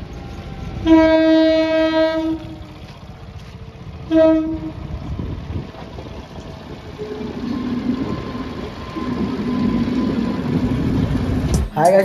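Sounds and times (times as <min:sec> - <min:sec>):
train horn blasts: 0:00.8 - 0:02.8, 0:04.0 - 0:04.9.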